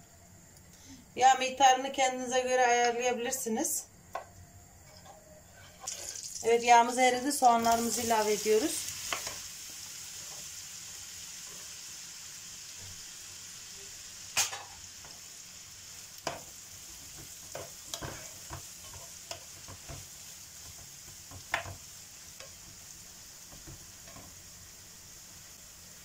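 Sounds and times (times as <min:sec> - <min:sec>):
onions sizzling in oil: 0:05.5 - 0:26.0.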